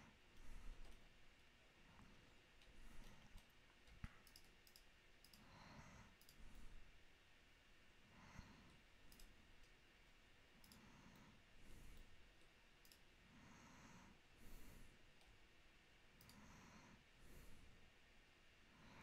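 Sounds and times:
soft breathing: 0.0 - 1.1, 1.8 - 3.5, 5.3 - 7.0, 8.0 - 9.0, 10.6 - 12.4, 13.2 - 15.4, 16.2 - 18.0, 18.6 - 19.0
faint sharp clicks: 2.6 - 5.5, 6.2 - 6.4, 8.6 - 9.8, 10.6 - 11.3, 11.9 - 13.1, 16.2 - 16.4.

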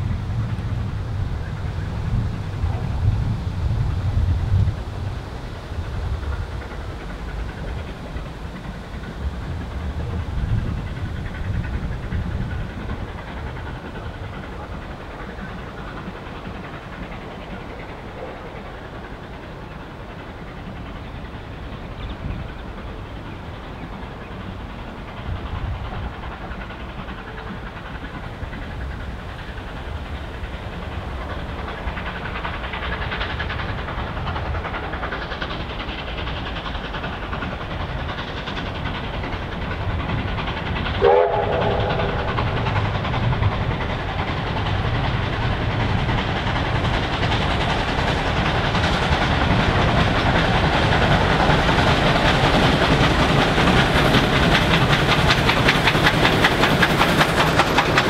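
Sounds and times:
steam locomotive working: 0.0 - 58.0
steam whistle: 41.0 - 42.3.

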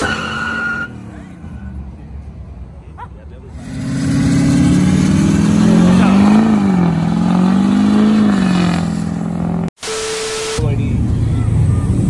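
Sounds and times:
truck engine revving: 3.4 - 9.8.

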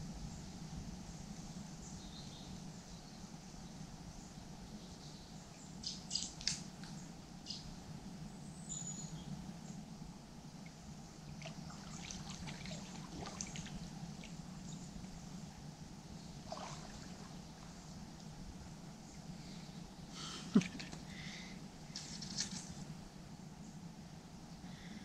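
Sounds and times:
river water trickling: 10.5 - 23.1
small splashes from wading: 10.7 - 14.9, 16.3 - 17.9, 21.9 - 22.8.

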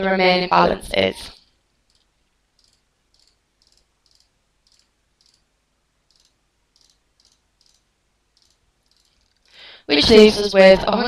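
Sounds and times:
faint computer mouse clicks: 1.4 - 5.5, 6.1 - 9.6.

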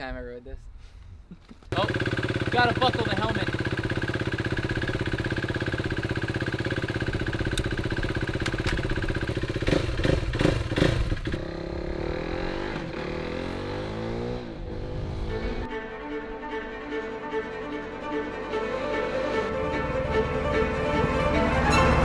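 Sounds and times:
motorcycle engine idling and revving: 1.7 - 15.7.

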